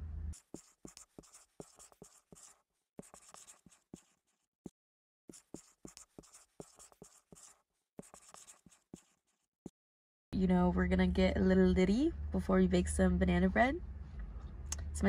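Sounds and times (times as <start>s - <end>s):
marker writing on whiteboard: 0.4s - 4.5s, 5.3s - 9.5s.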